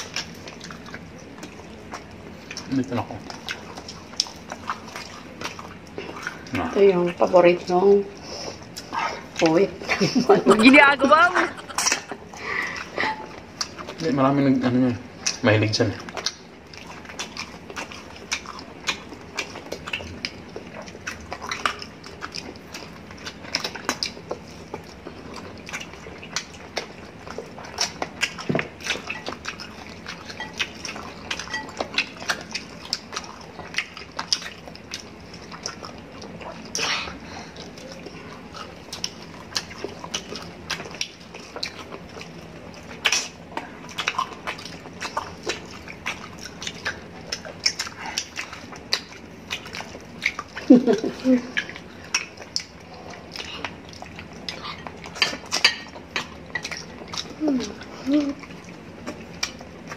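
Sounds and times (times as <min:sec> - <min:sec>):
wet chewing: 0:00.0 - 0:59.9
lip smacks: 0:11.6 - 0:14.0, 0:16.0 - 0:50.7, 0:51.5 - 0:59.9.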